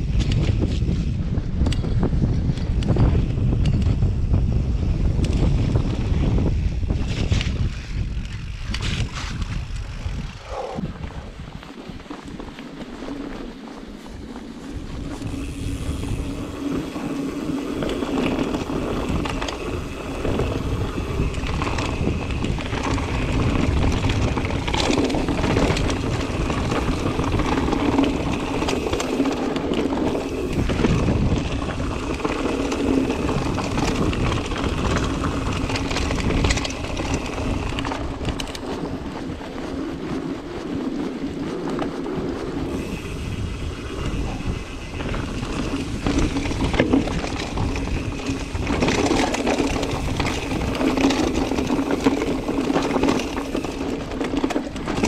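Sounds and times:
bike tyres rolling over ground: 0.0s - 55.0s
wind noise on microphone: 0.0s - 55.0s
bike knocks and rattles: 12.0s - 40.3s, 41.0s - 55.0s.

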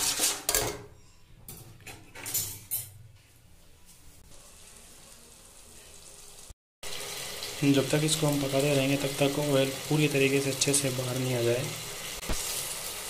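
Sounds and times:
metal spoon scraping a pan: 0.0s - 2.9s.

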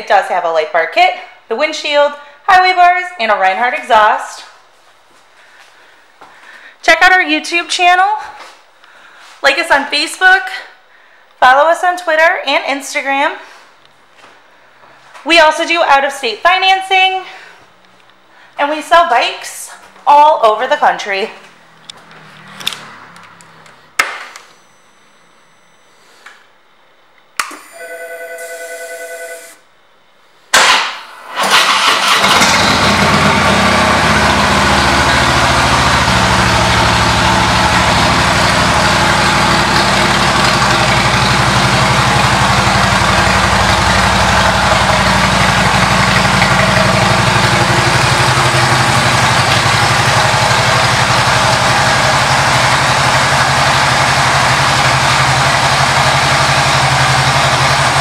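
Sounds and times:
motorcycle starter cranking: 30.6s - 33.3s
motorcycle engine idling: 34.0s - 58.0s.

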